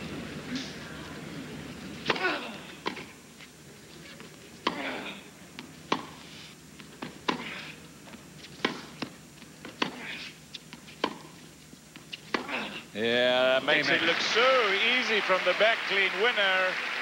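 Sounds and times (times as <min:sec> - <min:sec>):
tennis ball off racket strings: 0:02.0 - 0:03.1, 0:05.6 - 0:06.2, 0:08.5 - 0:10.1, 0:10.7 - 0:11.4, 0:12.1 - 0:12.6
tennis ball bouncing on court: 0:05.6 - 0:06.2, 0:06.8 - 0:07.6, 0:08.5 - 0:10.1, 0:10.7 - 0:12.5.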